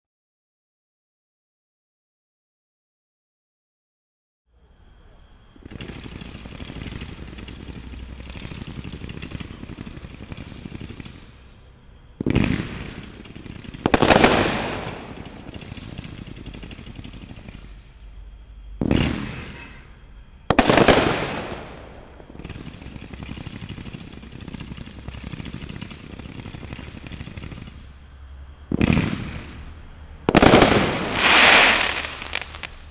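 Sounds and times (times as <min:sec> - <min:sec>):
firework shots crackling: 0:05.6 - 0:17.8, 0:18.8 - 0:28.1, 0:28.7 - 0:32.9
loud firework bangs: 0:05.6 - 0:17.9, 0:18.7 - 0:28.1, 0:28.7 - 0:32.9.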